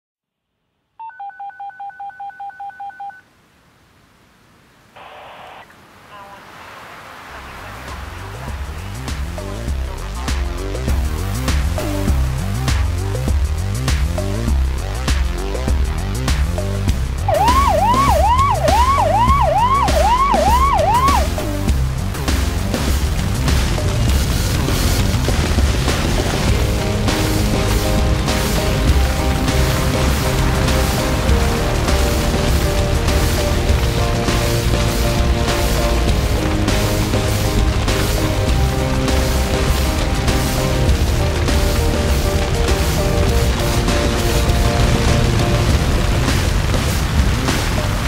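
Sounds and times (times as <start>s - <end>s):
telephone keypad dialing tones: 1.0s - 3.2s
electronic music with steady beat: 8.1s - 24.0s, 26.5s - 47.0s
siren whooping: 17.3s - 21.5s.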